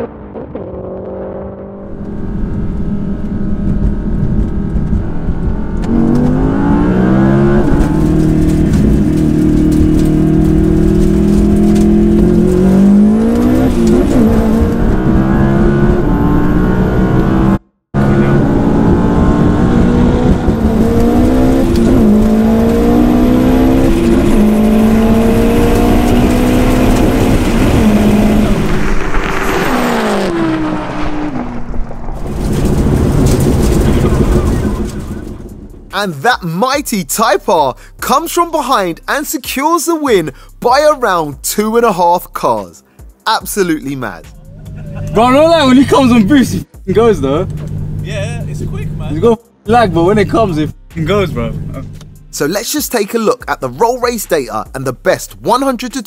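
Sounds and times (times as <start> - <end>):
sports car engine revving through gears: 0.0 - 31.4, 44.7 - 52.4.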